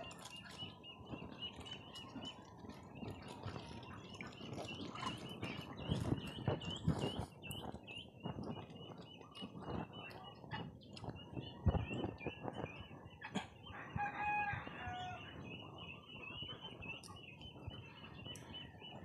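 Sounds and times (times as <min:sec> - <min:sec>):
ducks pecking and dabbling: 0:00.0 - 0:19.0
rooster crowing: 0:13.7 - 0:15.3.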